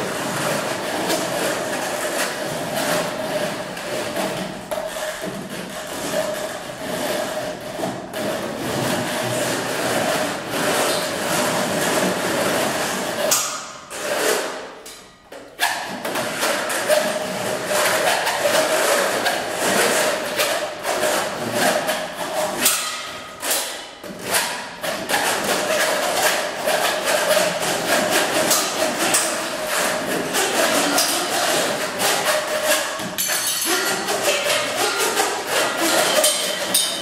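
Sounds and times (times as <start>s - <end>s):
rapid hits on metal percussion: 25.3s - 37.0s.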